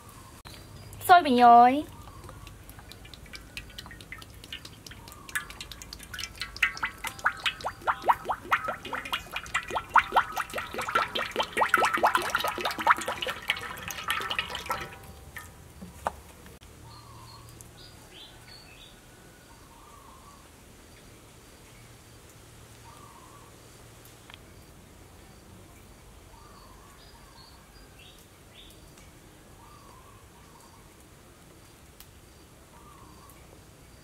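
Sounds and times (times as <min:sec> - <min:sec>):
oil splashing into a steel pan: 0:02.0 - 0:15.6.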